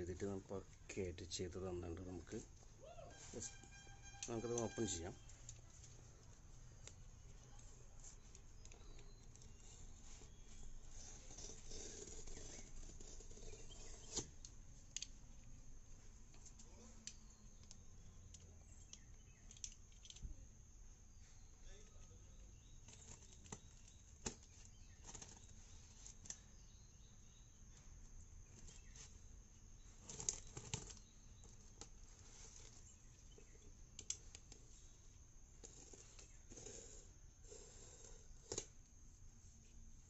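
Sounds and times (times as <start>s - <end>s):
crackles: 29.8s - 39.0s.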